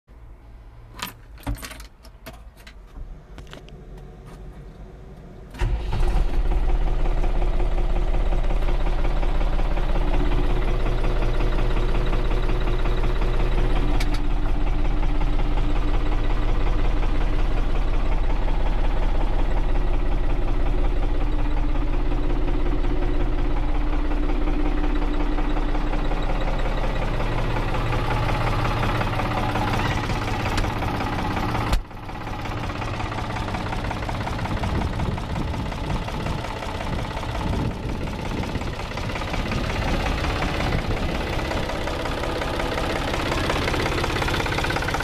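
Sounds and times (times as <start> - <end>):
diesel engine starting and idling: 0.1 - 45.0
keys jingling in ignition: 1.0 - 3.0.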